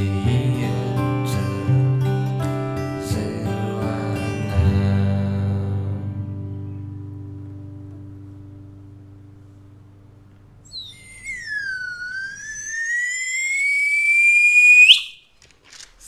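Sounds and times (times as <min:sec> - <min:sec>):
acoustic guitar music: 0:00.0 - 0:10.7
hand-held whistle blown: 0:10.7 - 0:15.3.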